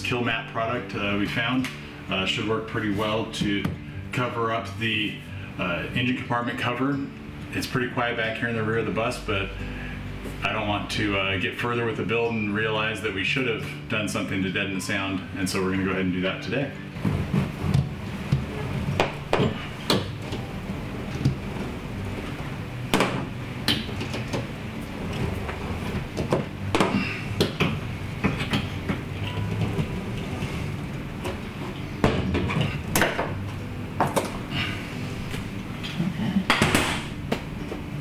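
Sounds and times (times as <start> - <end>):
mat handling knocks and rustles: 17.0 - 20.5.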